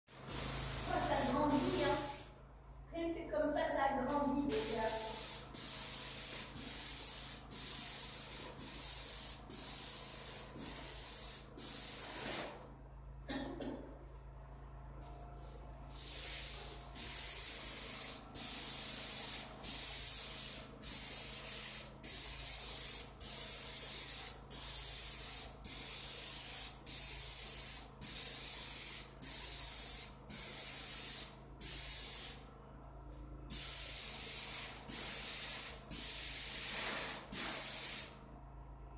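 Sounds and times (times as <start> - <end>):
paint spray gun hissing: 0.1 - 2.3, 4.5 - 12.5, 16.1 - 32.4, 33.5 - 38.2.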